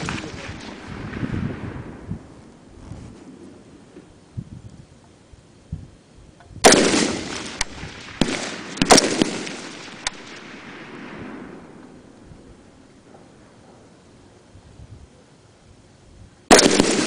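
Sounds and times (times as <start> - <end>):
rifle shots with echo: 0.0 - 2.1, 6.6 - 12.2, 16.5 - 17.0.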